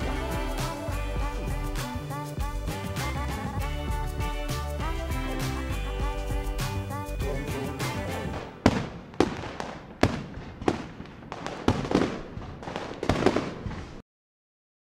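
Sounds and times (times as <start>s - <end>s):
fireworks bangs and crackle: 7.8s - 14.0s.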